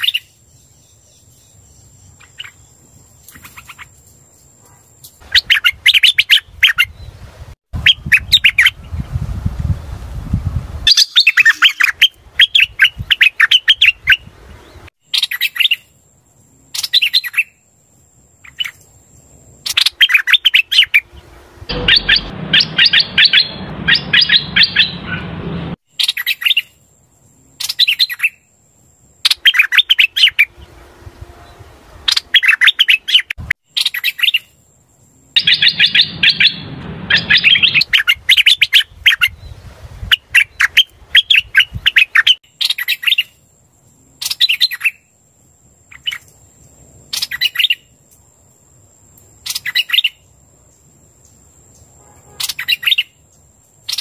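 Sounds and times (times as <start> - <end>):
bird rapid high chirping: 10.9 - 14.3, 19.7 - 26.7, 32.1 - 34.5, 35.4 - 39.5
low rumble: 21.0 - 25.8, 30.4 - 32.1, 35.4 - 38.0.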